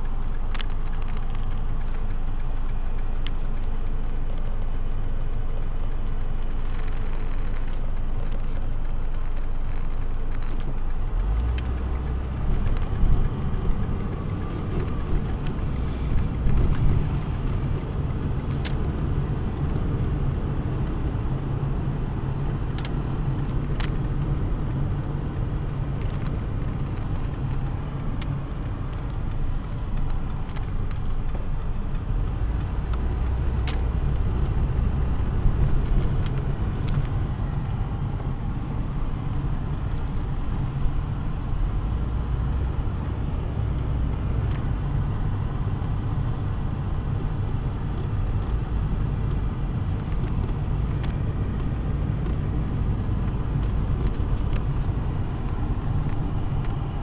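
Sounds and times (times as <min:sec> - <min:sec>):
engine and tyre rumble: 0:00.0 - 0:57.0.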